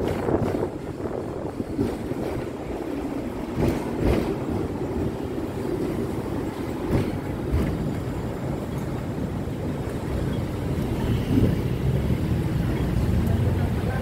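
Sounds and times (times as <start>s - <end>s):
wind on microphone: 0.0s - 7.9s
tram wheels rumbling on rail: 0.0s - 14.0s.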